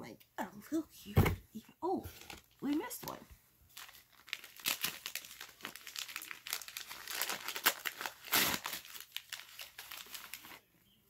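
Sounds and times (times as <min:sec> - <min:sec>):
tissue paper crinkling: 0:03.7 - 0:10.6.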